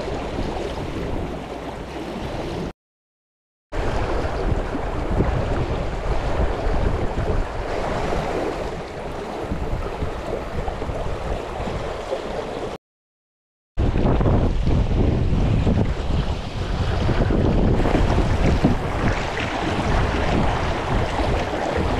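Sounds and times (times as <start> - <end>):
wind rumbling on microphone: 3.8 - 12.8, 13.8 - 21.9.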